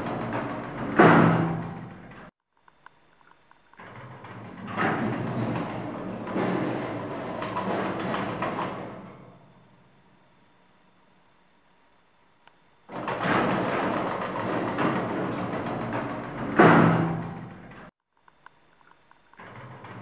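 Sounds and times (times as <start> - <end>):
elevator doors sliding: 0.0 - 2.3, 3.8 - 9.8, 12.9 - 17.9, 19.4 - 20.0
steady low hum: 0.0 - 20.0.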